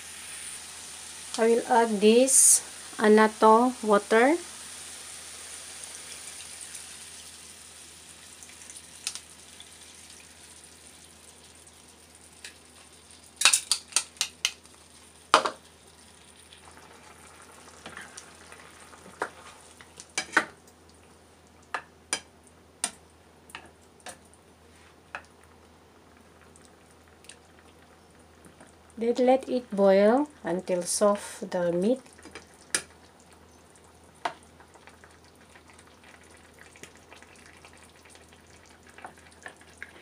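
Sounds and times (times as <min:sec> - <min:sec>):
chicken sizzling in pan: 0:00.0 - 0:20.6.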